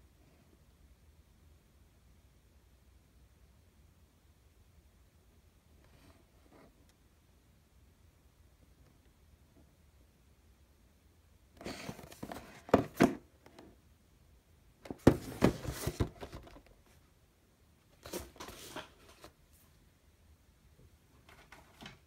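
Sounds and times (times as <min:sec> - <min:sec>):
cardboard box rustling and scraping: 0:11.6 - 0:13.2, 0:14.9 - 0:16.6, 0:18.0 - 0:19.3.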